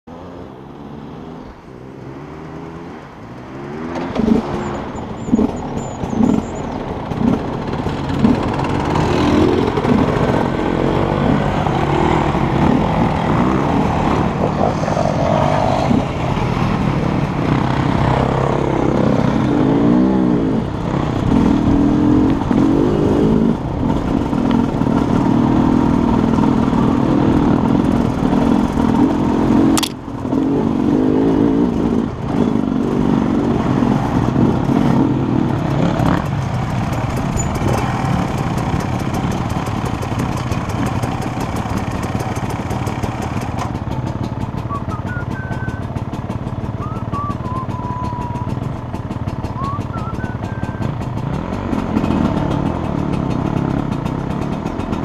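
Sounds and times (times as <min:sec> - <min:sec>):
dirt bike engines revving: 0:00.1 - 0:55.0
sharp click: 0:29.8 - 0:30.0.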